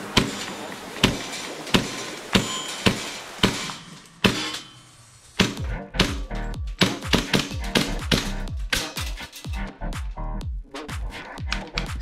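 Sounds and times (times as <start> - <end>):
airsoft gun shots: 1.0 - 4.7, 5.4 - 9.0.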